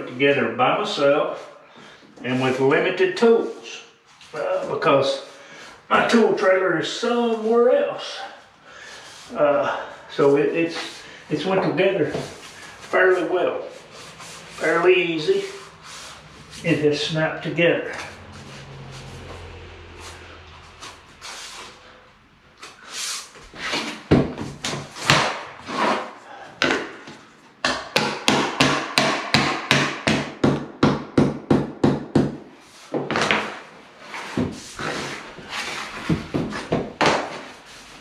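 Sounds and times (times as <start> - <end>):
hammer knocking block on floor planks: 27.6 - 32.4.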